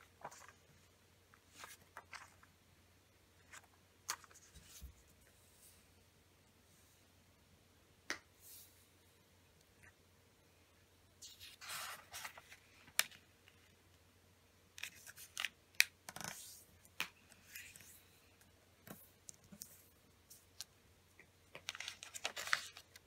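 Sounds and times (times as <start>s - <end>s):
paper rustling and sliding: 11.2s - 13.1s.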